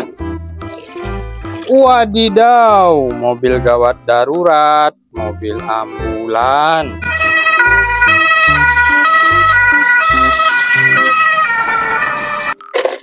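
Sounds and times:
ambulance siren two-tone wail: 7.0s - 12.6s.

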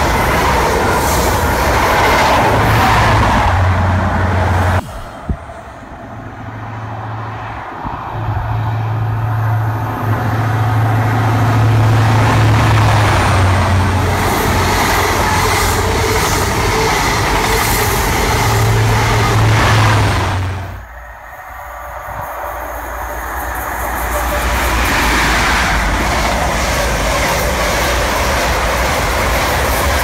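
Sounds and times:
diesel engine drone: 2.4s - 30.0s
rail clatter: 9.8s - 20.8s, 22.2s - 30.0s.

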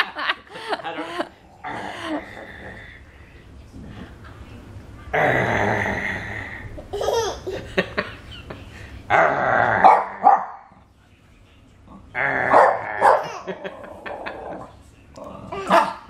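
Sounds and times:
dog growling: 1.4s - 3.0s, 11.9s - 16.0s
dog barking: 9.8s - 10.7s, 12.5s - 13.4s.

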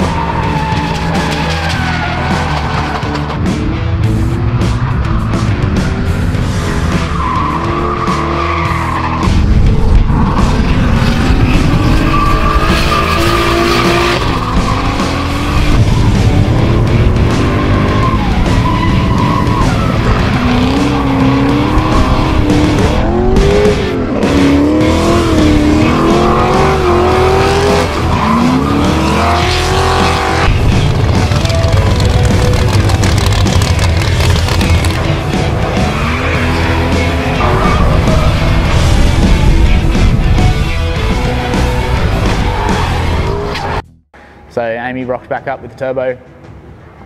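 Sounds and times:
tyres squealing: 0.0s - 3.4s
car engines revving: 0.0s - 43.8s
background music: 0.0s - 47.0s.

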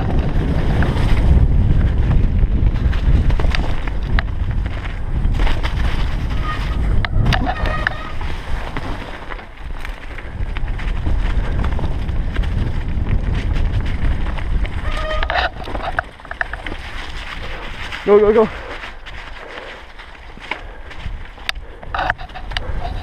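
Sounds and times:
bike clicking and rattling: 0.0s - 23.0s
wind rumbling on microphone: 0.0s - 23.0s.

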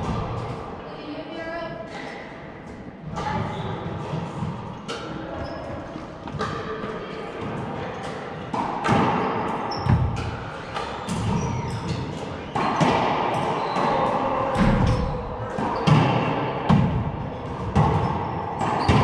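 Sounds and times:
racquetball hits echoing: 0.0s - 0.8s, 1.8s - 19.0s.

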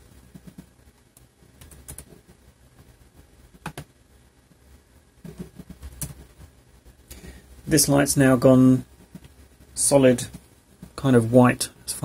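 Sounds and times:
quiet room hum: 0.0s - 12.0s
computer mouse clicks: 0.3s - 2.2s, 3.6s - 3.9s, 5.3s - 6.2s.

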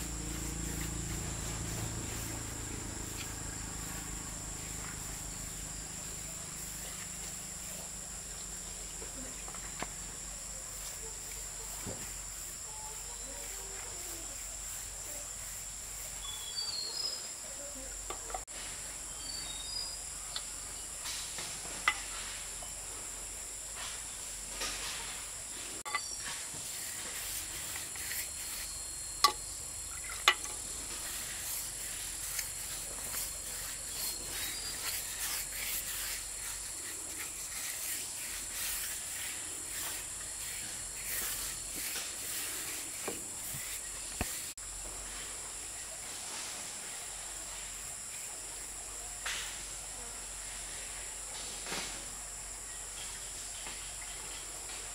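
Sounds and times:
insects droning: 0.0s - 54.9s
faint bird chirps: 16.2s - 17.8s, 19.0s - 20.5s.

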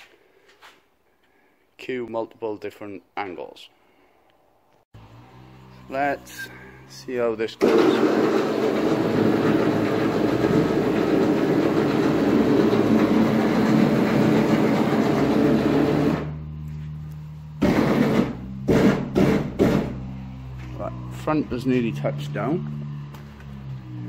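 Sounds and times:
vehicle lift motor running: 5.0s - 24.0s
loud knocks: 17.6s - 20.0s.

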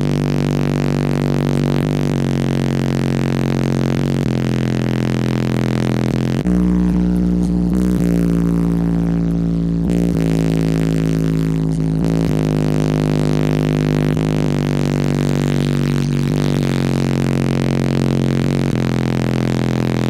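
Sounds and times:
loud bass-heavy music: 0.0s - 20.0s.

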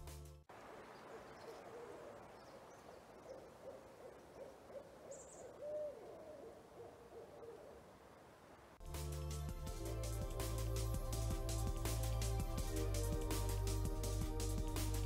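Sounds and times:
owls hooting: 0.6s - 7.9s.

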